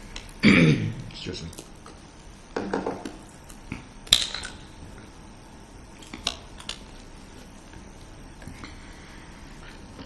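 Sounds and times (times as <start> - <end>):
person clearing throat: 0.4 - 1.0.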